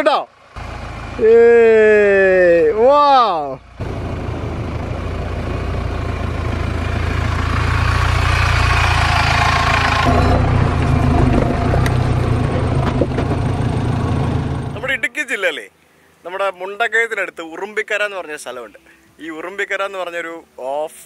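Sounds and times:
engine low rumble: 0.3s - 15.1s
sharp knocks: 10.1s - 13.7s.

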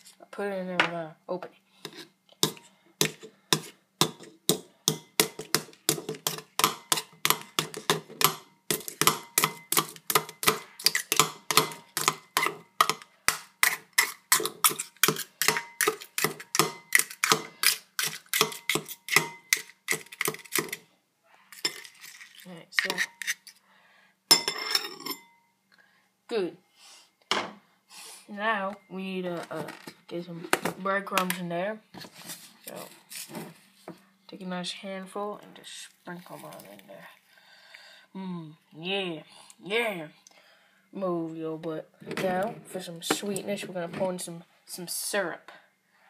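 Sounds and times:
soft scrapes and knocks: 31.9s - 34.1s.

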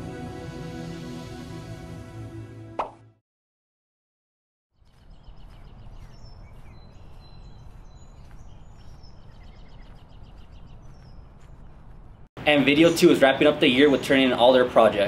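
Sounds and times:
small birds chirping: 4.7s - 15.0s.

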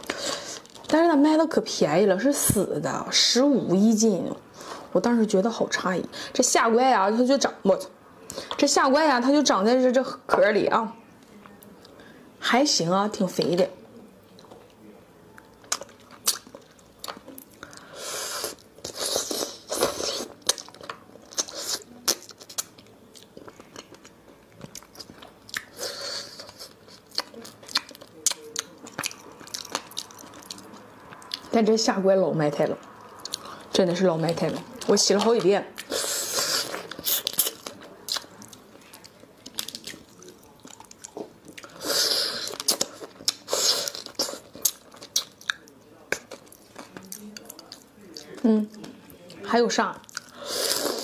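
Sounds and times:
crab being chewed: 15.6s - 31.5s, 34.2s - 49.4s.

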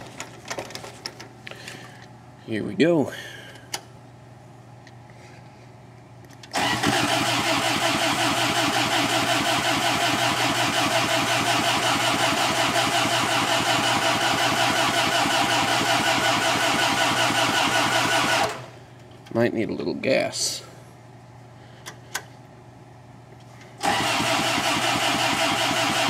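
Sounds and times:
engine cranking by starter: 6.4s - 18.8s, 23.8s - 26.0s.

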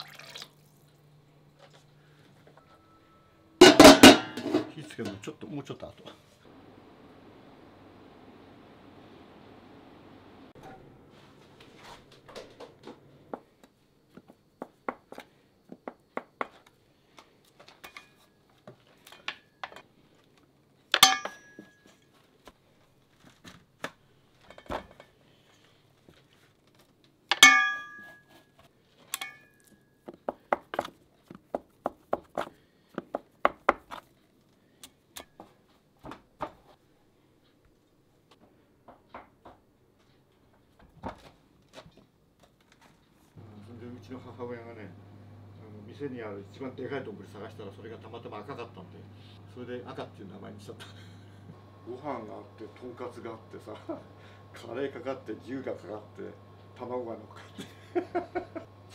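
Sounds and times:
dishes and utensils clinking: 3.6s - 5.3s, 21.0s - 22.0s, 27.3s - 28.4s
loud ringing clinks: 21.0s - 21.8s, 27.4s - 28.3s.

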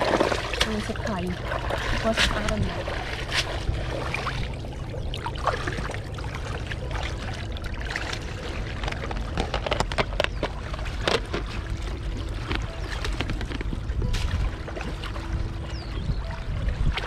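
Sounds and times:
water splashing in plastic tub: 0.0s - 15.2s
shallow flowing water rushing: 0.0s - 17.0s.

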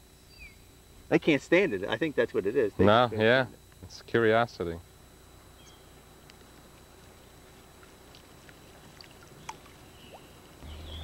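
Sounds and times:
faint chirps: 0.1s - 4.0s, 5.1s - 11.0s
water lapping: 7.7s - 10.6s.

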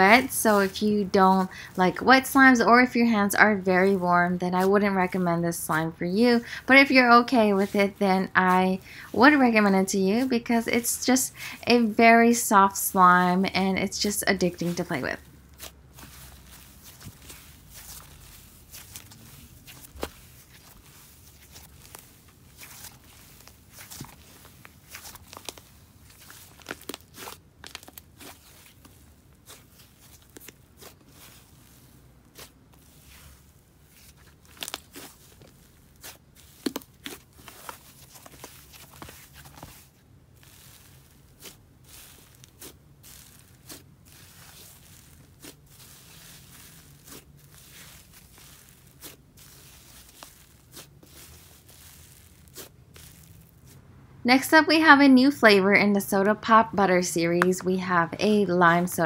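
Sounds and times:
wet slime squished by hand: 14.6s - 53.8s.

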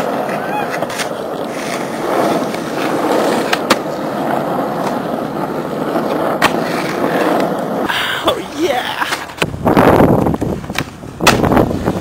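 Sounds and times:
skateboard clacks: 0.0s - 7.9s, 8.5s - 12.0s
skateboard wheels rumbling on asphalt: 0.0s - 12.0s.

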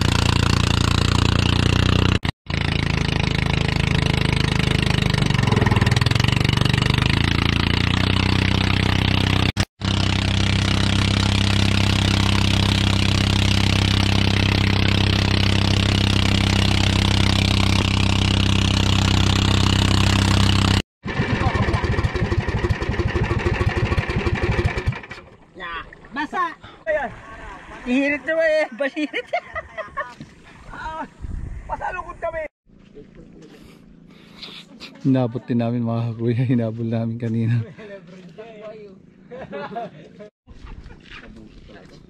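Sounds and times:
boat engine running: 0.0s - 25.6s
wind: 0.0s - 42.0s.

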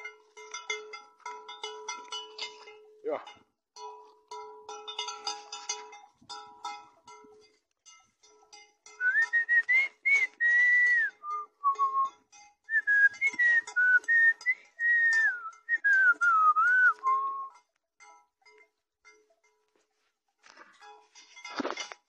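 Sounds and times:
person whistling a tune: 9.0s - 12.1s, 12.7s - 17.6s.

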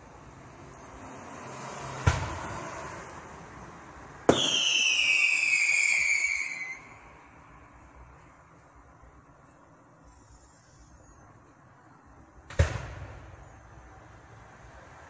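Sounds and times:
firework bangs: 4.3s - 7.0s, 12.5s - 13.4s
falling firework whistle: 4.3s - 7.1s.

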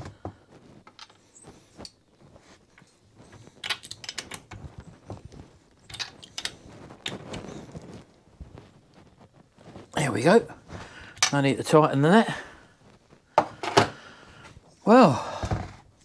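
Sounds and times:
tools and parts handled: 0.0s - 8.1s, 11.1s - 11.5s, 13.4s - 14.0s.

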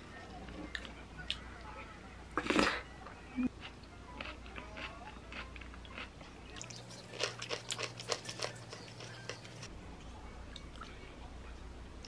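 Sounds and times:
moist chewing clicks: 4.2s - 9.7s.

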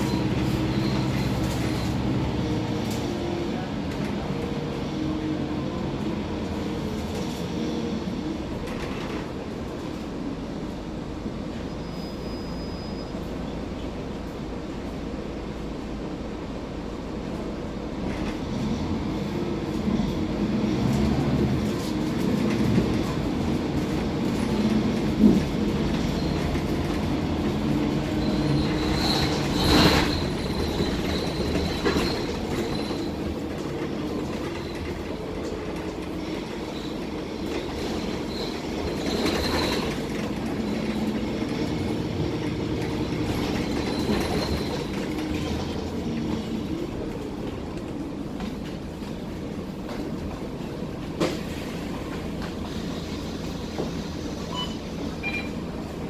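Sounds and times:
bus diesel engine: 0.0s - 56.0s
road noise: 0.0s - 56.0s
high squeal: 11.6s - 13.5s, 24.9s - 35.2s, 36.0s - 46.4s, 52.6s - 55.6s.

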